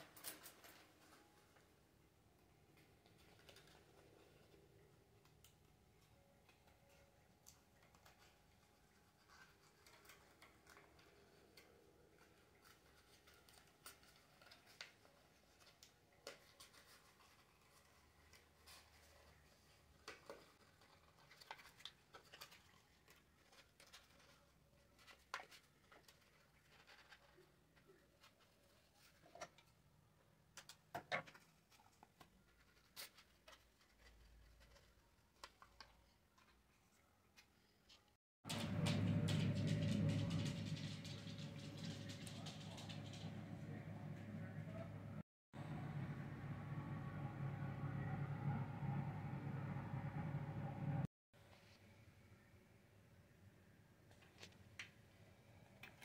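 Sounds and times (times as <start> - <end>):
paper rustling and crackling: 0.0 - 1.8, 2.7 - 29.8, 30.6 - 43.8.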